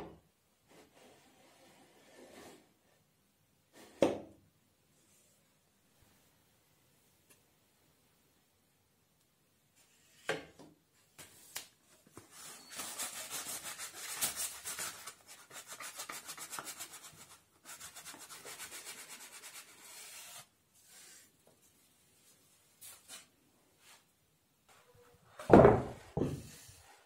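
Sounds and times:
sandpaper rubbing on wood: 0:12.7 - 0:20.5.

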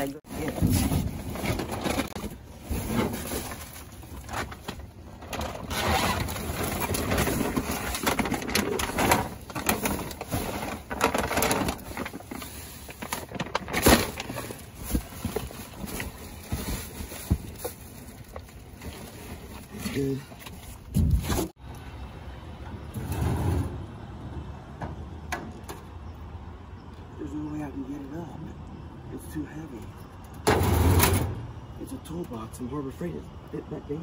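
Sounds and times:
plastic bags rustling and crinkling: 0:00.0 - 0:21.6.

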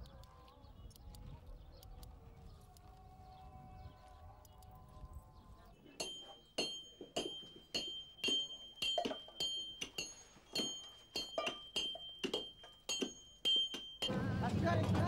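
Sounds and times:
hammers striking stone: 0:06.0 - 0:15.0.

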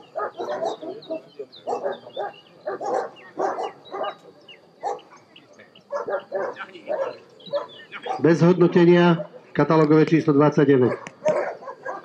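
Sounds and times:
dog barking: 0:00.0 - 0:04.2, 0:04.8 - 0:05.2, 0:05.9 - 0:08.4, 0:09.1 - 0:09.4, 0:10.8 - 0:12.0.

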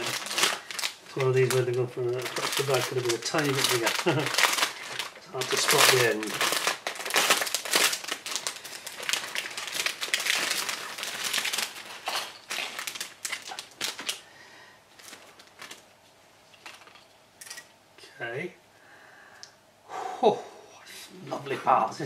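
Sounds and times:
plastic bag crinkling: 0:00.0 - 0:14.3, 0:14.9 - 0:17.1
soft plastic rustles: 0:00.0 - 0:14.3, 0:14.9 - 0:17.2.

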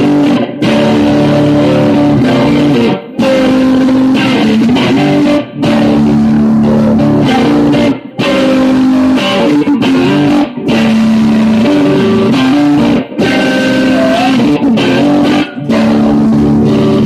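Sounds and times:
electric guitar strummed: 0:00.0 - 0:17.0.

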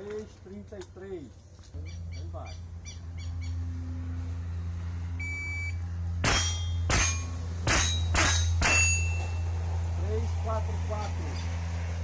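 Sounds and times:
shot timer beep: 0:05.2 - 0:05.8
bullet ringing on steel plate: 0:06.2 - 0:09.5.

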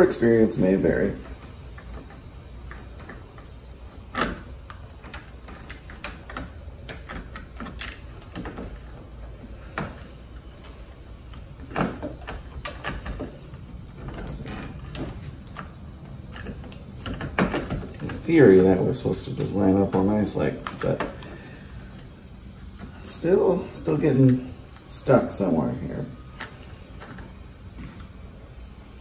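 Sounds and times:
lock parts clicking and tapping: 0:01.2 - 0:10.1, 0:11.2 - 0:18.3.

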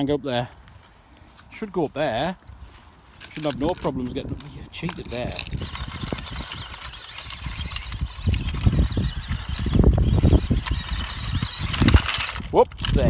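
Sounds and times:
toy truck motor whining: 0:03.2 - 0:13.0.

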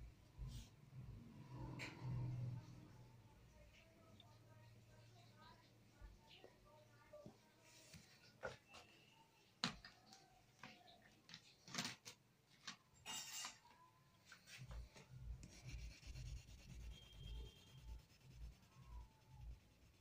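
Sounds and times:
pencil shading on paper: 0:15.3 - 0:20.0.

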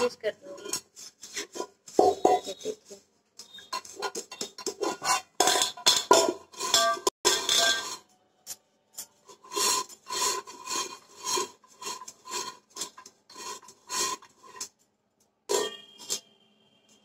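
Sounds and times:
pan scrape: 0:00.0 - 0:08.1, 0:09.0 - 0:14.7, 0:15.5 - 0:16.3
hand rubbing metal pan: 0:00.4 - 0:08.0, 0:09.3 - 0:14.7, 0:15.5 - 0:16.2
faint ring from pan: 0:15.5 - 0:16.4.

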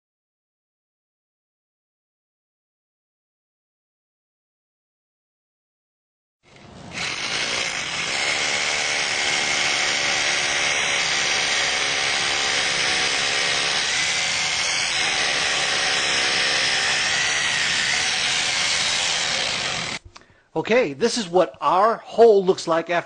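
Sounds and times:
hammer drill boring into concrete: 0:06.5 - 0:20.0.

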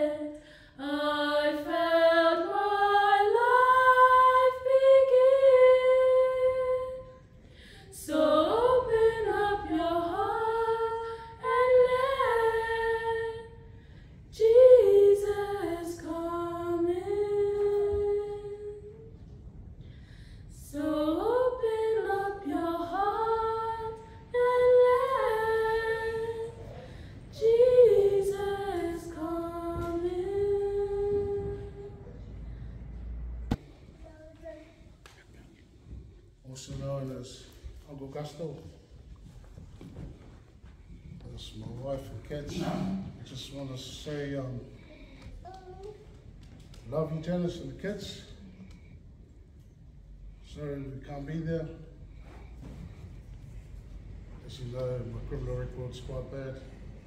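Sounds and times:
women singing a cappella: 0:00.0 - 0:19.3, 0:20.5 - 0:32.4.

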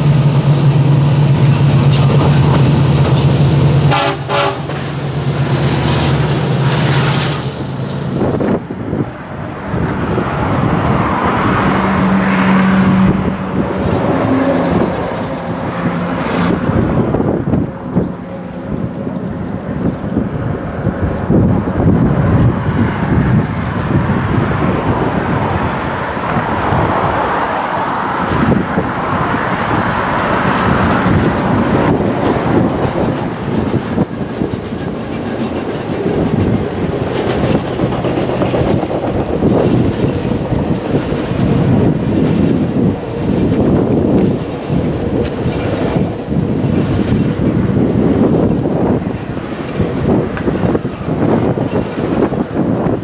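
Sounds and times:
diesel locomotives passing: 0:00.0 - 0:53.0
train wheels clacking over rail joints: 0:29.5 - 0:53.0.

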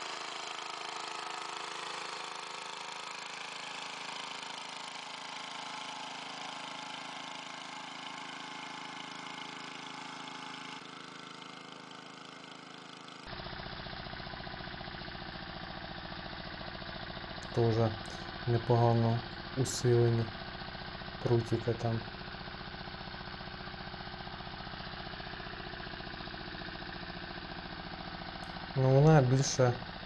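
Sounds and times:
walk-behind tractor engine: 0:00.0 - 0:30.0
deeper tractor engine beat: 0:17.4 - 0:20.4.

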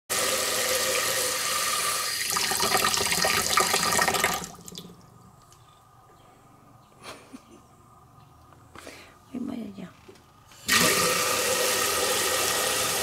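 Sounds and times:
water running into sink: 0:00.1 - 0:05.0, 0:10.7 - 0:13.0
water dripping: 0:02.2 - 0:05.4.

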